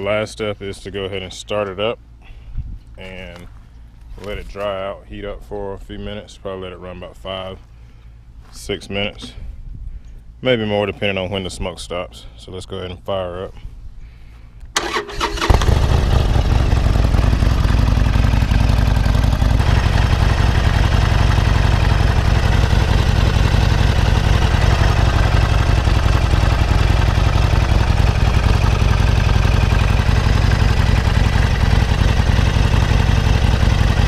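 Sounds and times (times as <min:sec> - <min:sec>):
motorcycle engine starting and idling: 0:14.7 - 0:34.0.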